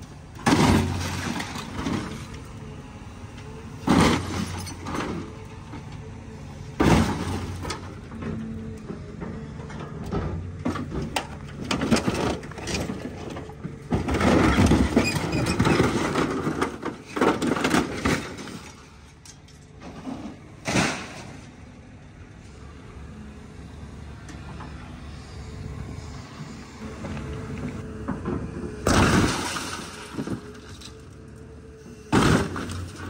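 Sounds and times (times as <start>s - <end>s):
excavator engine running: 0.0s - 33.0s.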